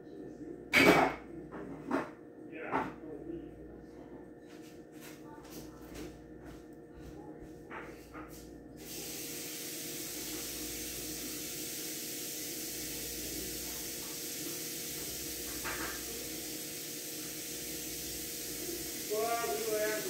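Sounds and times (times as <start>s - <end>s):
faint low hum: 0.0s - 11.3s
steady hiss: 8.8s - 20.0s.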